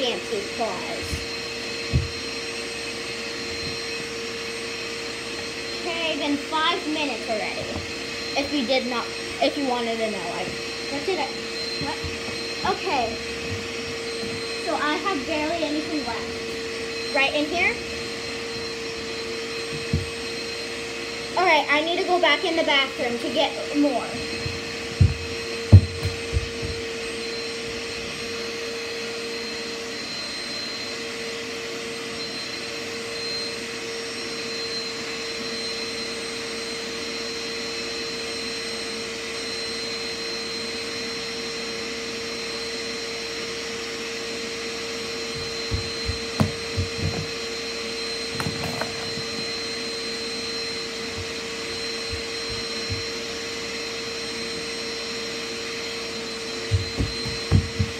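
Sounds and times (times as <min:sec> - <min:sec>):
vacuum cleaner running: 0:00.0 - 0:57.9
dull thumps: 0:01.1 - 0:02.2, 0:19.6 - 0:20.2, 0:24.3 - 0:26.9, 0:45.3 - 0:47.4, 0:56.7 - 0:57.9.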